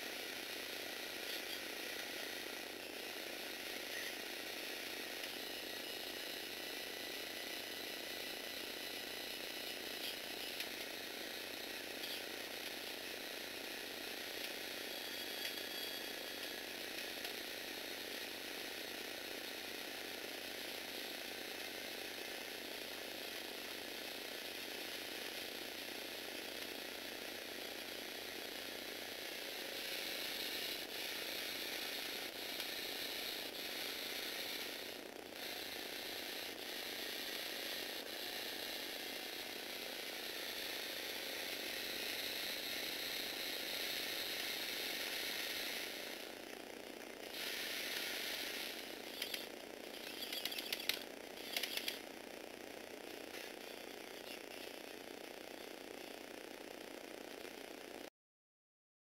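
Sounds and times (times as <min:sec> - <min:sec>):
electric motor gears whirring: 0:00.1 - 0:57.8
sharp clicks: 0:49.1 - 0:52.0.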